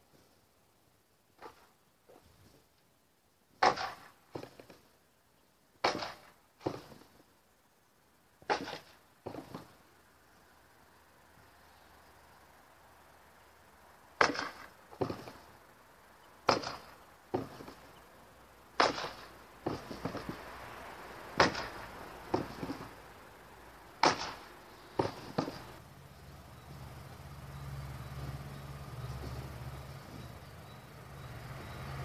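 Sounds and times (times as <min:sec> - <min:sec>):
sword striking wooden post: 0:03.6 - 0:04.6, 0:05.8 - 0:07.0, 0:08.5 - 0:09.6, 0:14.2 - 0:15.3, 0:16.5 - 0:17.8, 0:18.8 - 0:20.4, 0:21.4 - 0:22.9, 0:24.0 - 0:25.7.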